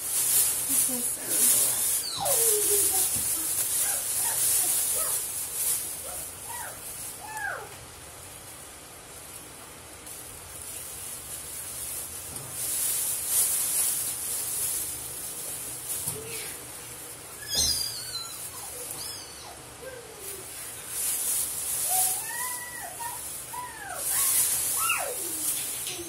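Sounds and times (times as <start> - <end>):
plastic bag crinkling: 0.0 - 7.4, 8.1 - 19.5, 20.2 - 26.0
high squeaky calls: 1.7 - 3.0, 17.4 - 19.6.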